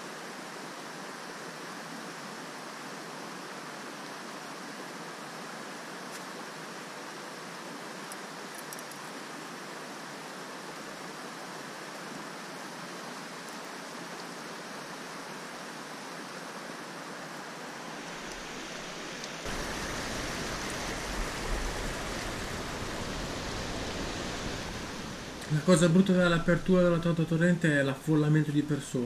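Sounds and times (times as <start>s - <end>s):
torrent rushing over rocks: 18.4s - 27.2s.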